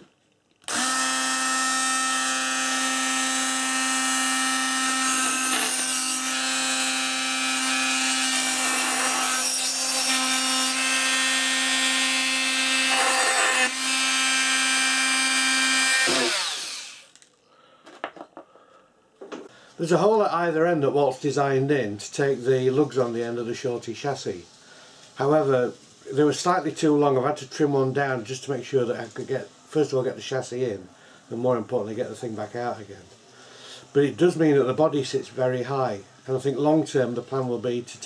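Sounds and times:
rotary tool cutting disc whine: 0.7 - 17.2.

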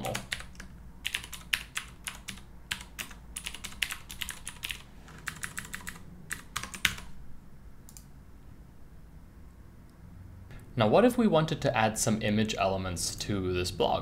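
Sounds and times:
typing on keyboard: 0.0 - 7.1.

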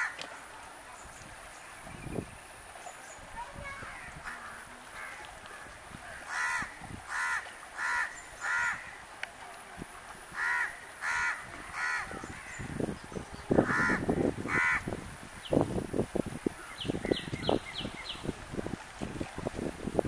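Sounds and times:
bird cawing: 3.9 - 9.0, 10.4 - 12.7, 13.6 - 14.9.

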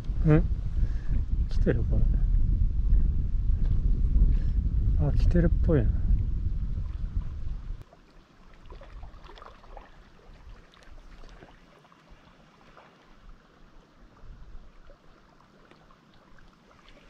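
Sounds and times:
lake water lapping: 6.8 - 17.0.

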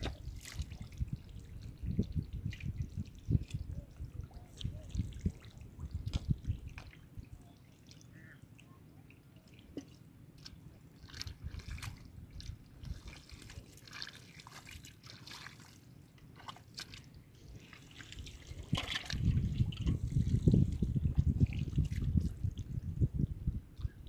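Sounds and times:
splashes in muddy water: 0.0 - 1.4, 9.5 - 22.3
wet squelches: 0.0 - 22.7
water drips: 0.0 - 22.9.

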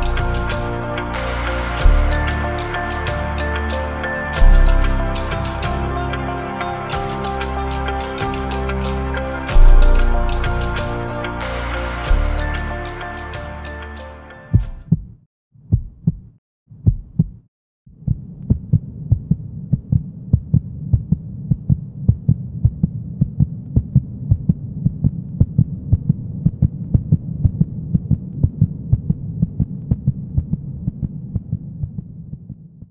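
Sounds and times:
throbbing bass hum: 0.0 - 6.2, 6.9 - 13.6
low heartbeat-like thuds: 14.5 - 32.9.

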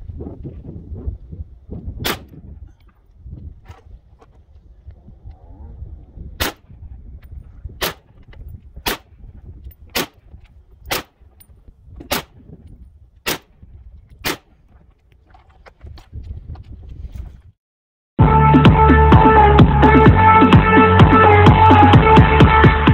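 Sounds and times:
rifle shots: 2.0 - 2.3, 6.4 - 6.7, 7.8 - 8.1, 8.8 - 9.1, 9.9 - 10.2, 10.9 - 11.2, 13.3 - 13.5, 14.2 - 14.5.

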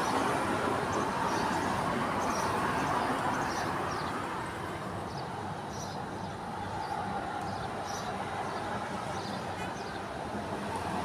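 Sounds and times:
passing vehicles rumbling: 0.0 - 11.0
small birds chirping: 2.2 - 4.2, 5.0 - 10.2.

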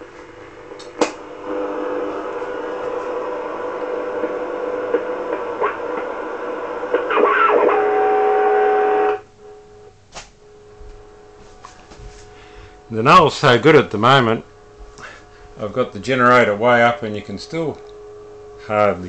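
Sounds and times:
faint steady tones: 1.4 - 19.0
radio band hiss: 1.5 - 9.2.

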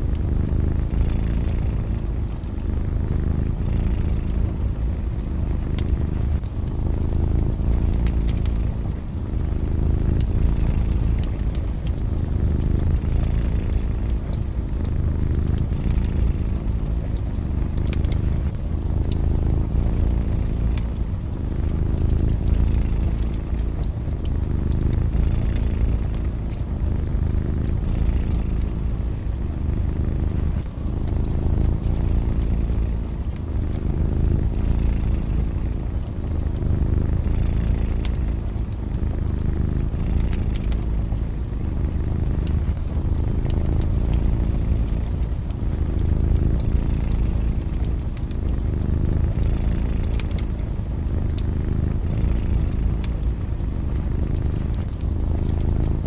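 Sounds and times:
cat purring: 0.0 - 56.0
wood fire crackling: 0.0 - 56.0.

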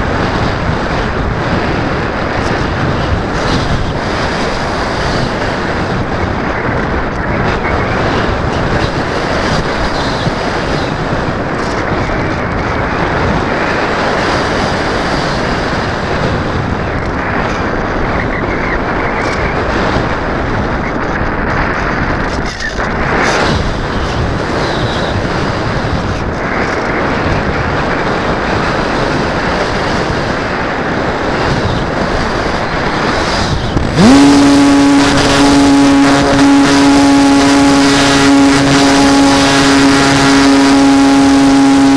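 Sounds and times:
wind rushing over camera: 0.0 - 41.9
electric motor whine: 33.7 - 41.9.

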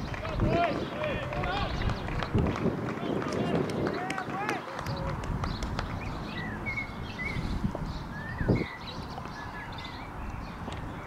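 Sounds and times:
bird chirps: 4.9 - 11.0.

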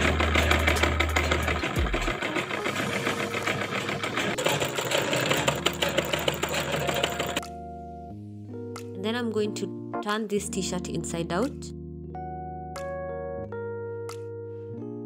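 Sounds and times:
sewing machine stitching: 0.0 - 7.4.

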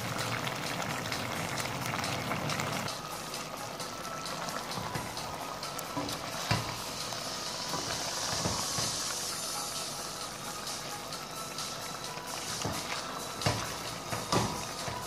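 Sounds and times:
stew simmering and crackling: 0.0 - 15.0.

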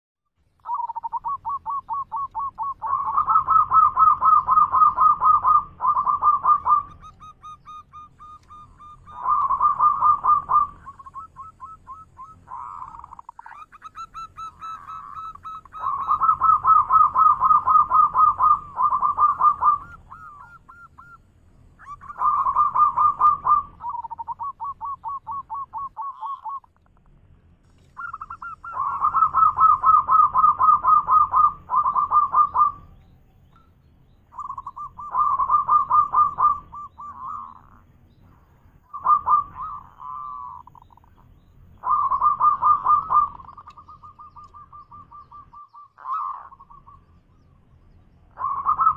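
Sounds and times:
dove cooing song: 0.6 - 48.9.

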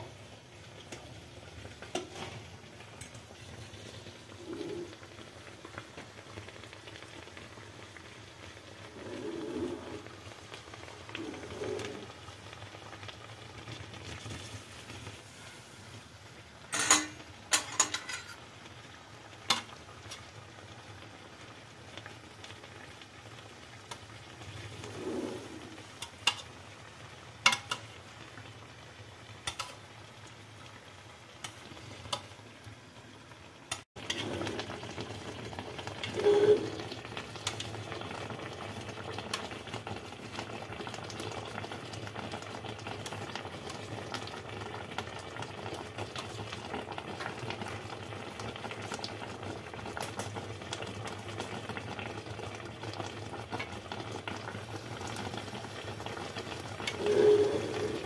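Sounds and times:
syrup bubbling in a pan: 0.0 - 58.0
metal spoon clinking on pan: 16.7 - 18.4, 27.4 - 27.8, 29.5 - 29.8.

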